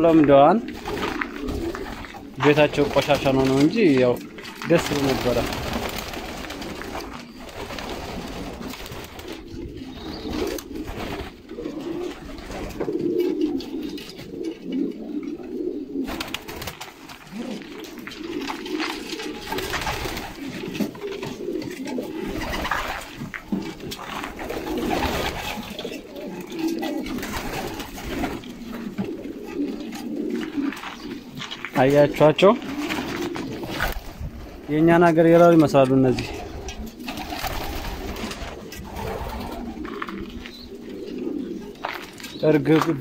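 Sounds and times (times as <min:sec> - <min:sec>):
pigeons cooing: 0:00.0 - 0:43.0.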